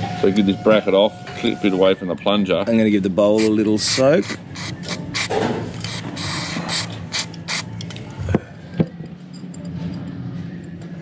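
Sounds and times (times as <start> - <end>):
aerosol spray squirts: 3.4 - 7.7.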